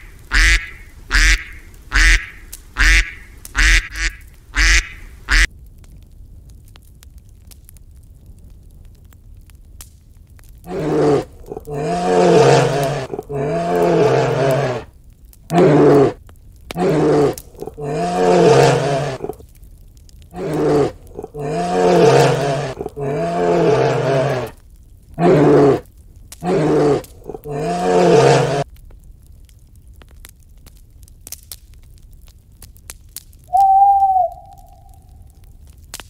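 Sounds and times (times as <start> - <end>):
bear roaring: 10.7 - 14.9, 15.5 - 19.4, 20.3 - 28.6.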